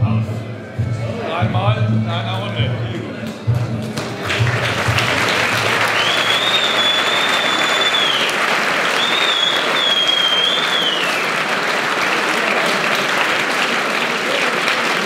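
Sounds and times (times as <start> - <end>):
crowd applauding and cheering: 3.2 - 15.0
shrill wavering whistle: 5.8 - 11.3.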